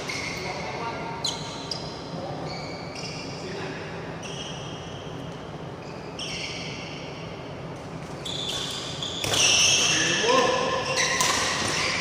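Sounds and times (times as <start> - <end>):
shoes squeaking: 0.0 - 3.6, 4.2 - 12.0
racket hitting shuttlecock: 8.5 - 11.9.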